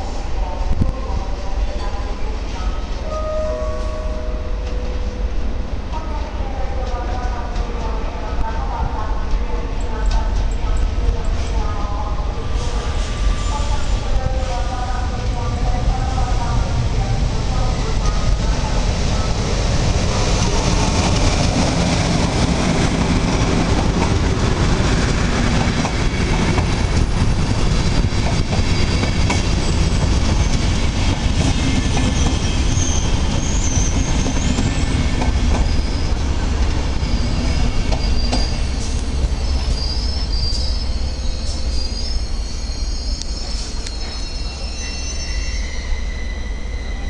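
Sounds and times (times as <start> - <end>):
train wheels rumbling on rails: 4.6 - 47.0
high thin wheel squeals: 35.6 - 36.2, 37.0 - 38.7, 39.4 - 47.0.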